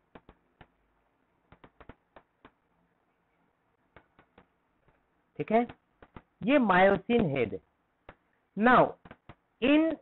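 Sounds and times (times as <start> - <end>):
stylus tapping on pen tablet: 0.1 - 0.8, 1.5 - 2.6, 3.9 - 5.0, 5.6 - 6.4, 8.0 - 8.3, 9.0 - 9.5.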